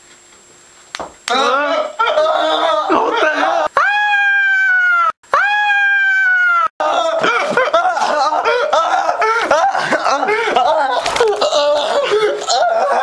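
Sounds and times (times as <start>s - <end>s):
man screaming: 1.3s - 7.6s, 10.1s - 13.0s.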